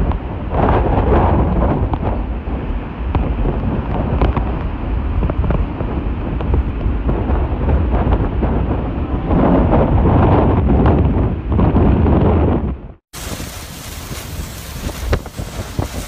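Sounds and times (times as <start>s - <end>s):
wind buffeting microphone: 0.0s - 16.0s
floodwater rushing across pavement: 13.1s - 16.0s.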